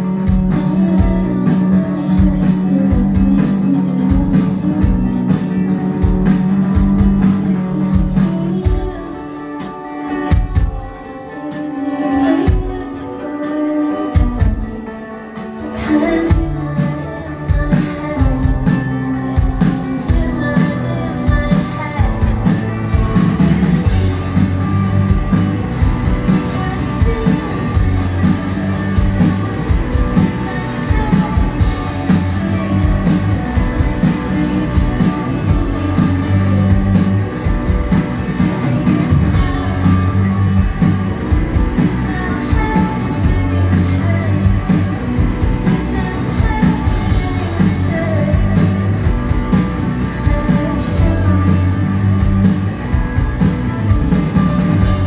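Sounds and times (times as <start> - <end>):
woman singing: 0.0 - 24.6, 26.2 - 40.8, 41.5 - 52.5
electric guitars: 0.0 - 55.0
pulsing bass line: 16.3 - 55.0.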